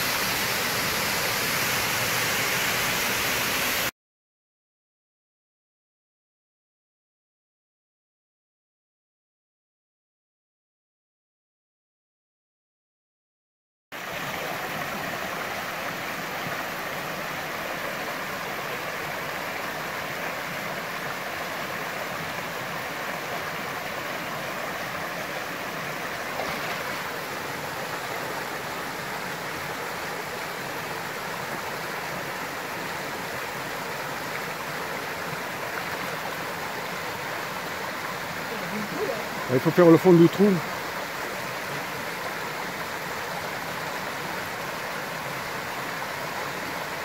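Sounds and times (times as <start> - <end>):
creek rushing over rocks: 0.0 - 3.9, 14.0 - 47.0.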